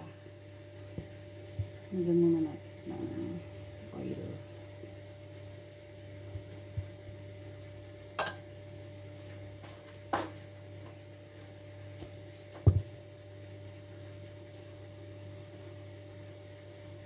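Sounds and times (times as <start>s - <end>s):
steady low hum: 0.0s - 17.0s
kitchen utensils clinking: 8.2s - 8.4s.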